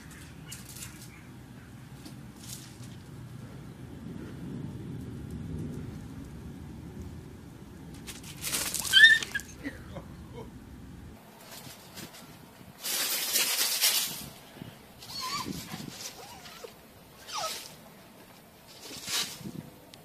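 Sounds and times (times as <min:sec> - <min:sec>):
low background rumble: 0:00.0 - 0:12.8
cat yowling: 0:08.8 - 0:09.6.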